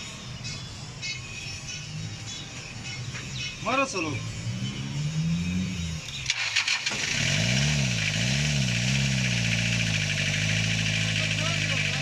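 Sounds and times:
diesel engine idling: 4.0 - 12.0
diesel engine starting and revving: 4.0 - 12.0.

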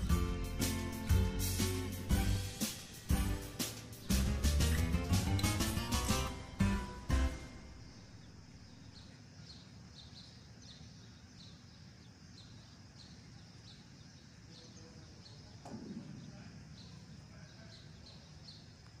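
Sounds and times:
faint background noise: 0.0 - 19.0
small birds chirping: 0.0 - 19.0.

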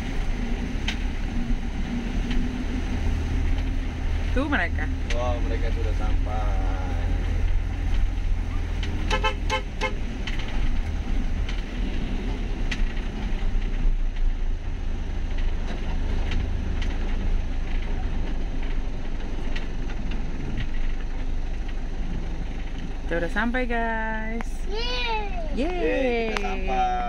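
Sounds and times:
vehicle rumble: 0.0 - 27.0.

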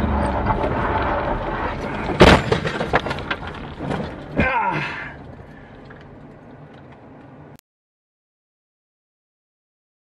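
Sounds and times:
car scraping and clatter: 0.0 - 7.6.

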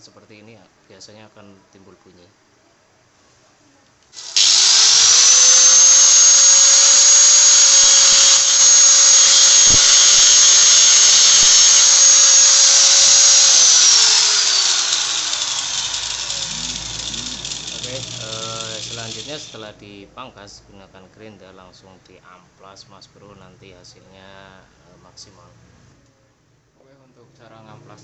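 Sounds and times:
electric grinder whining: 4.2 - 19.6.

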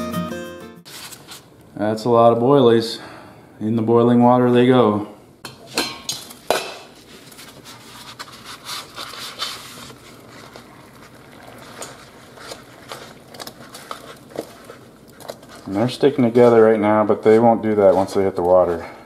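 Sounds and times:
water boiling and bubbling: 6.2 - 16.1.

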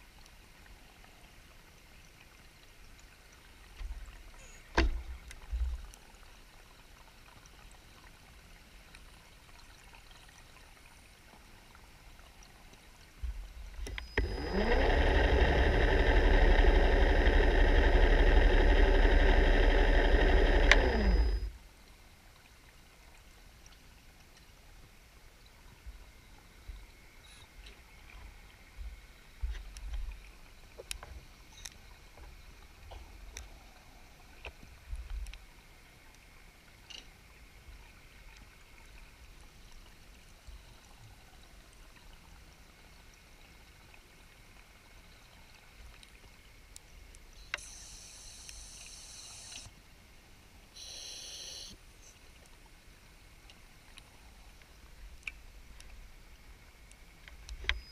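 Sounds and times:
muffled underwater knocks and clicks: 4.7 - 5.9
regulator breathing hiss: 47.6 - 49.7, 50.8 - 51.8.

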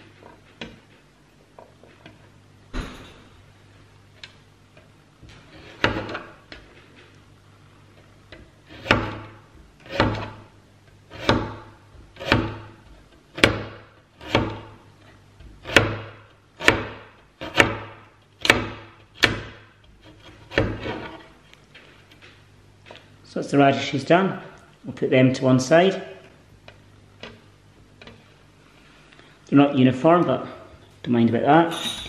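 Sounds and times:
knife chopping on cutting board: 5.5 - 6.4, 8.7 - 10.4, 11.1 - 14.8, 15.5 - 21.1.

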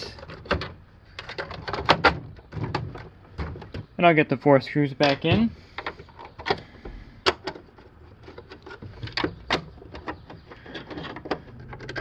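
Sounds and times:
plastic clicks and knocks: 7.2 - 12.0.

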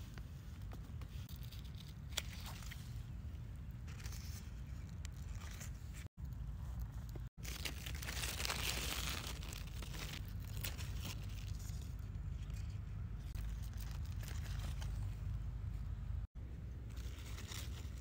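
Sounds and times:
leaves rustling and crackling: 3.8 - 15.4, 16.9 - 18.0.

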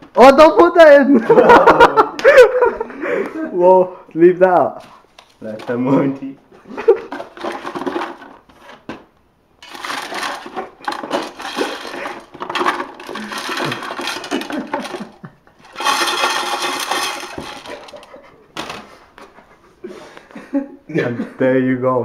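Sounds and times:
cardboard scraping inside metal pot: 9.6 - 18.2.

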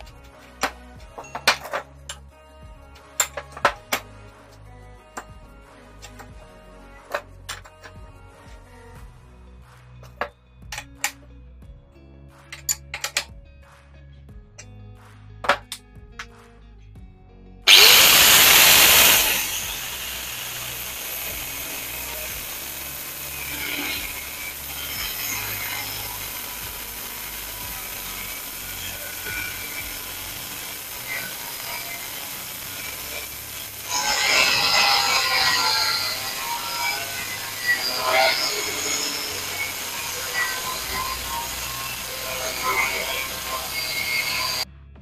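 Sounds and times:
angle grinder cutting steel: 0.0 - 2.2, 3.0 - 4.1, 5.9 - 6.3, 17.7 - 44.7.

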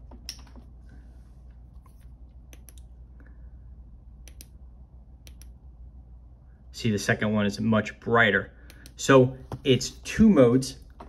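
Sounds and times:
low hum: 0.0 - 11.0
sharp clicks: 4.2 - 4.6, 5.2 - 5.6.

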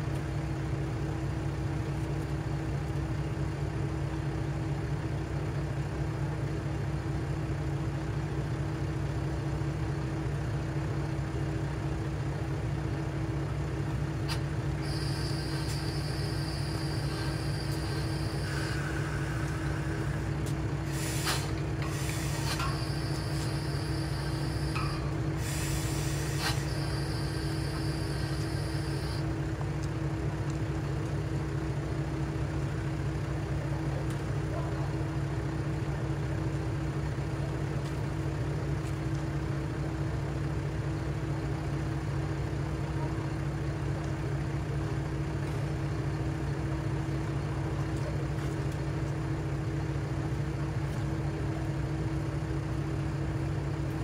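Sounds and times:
diesel railcar engine idling: 0.0 - 54.0
short air hisses: 17.1 - 20.2, 20.8 - 24.8, 25.4 - 27.6.

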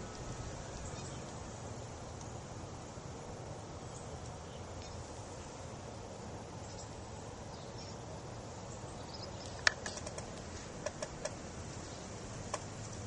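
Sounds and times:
outdoor background hiss: 0.0 - 13.0
light clicks and ticks: 9.4 - 11.4
sharp click: 9.5 - 11.4.

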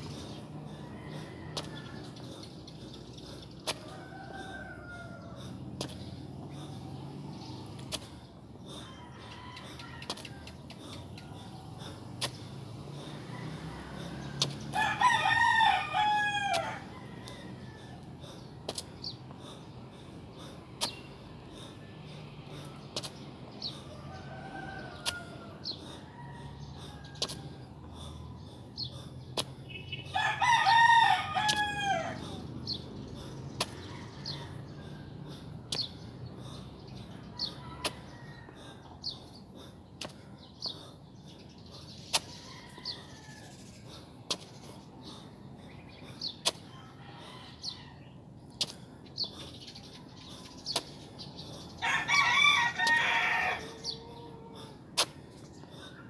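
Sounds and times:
rooster crowing: 3.8 - 5.4, 13.2 - 18.0, 23.9 - 27.3, 30.1 - 32.3, 51.8 - 54.6.

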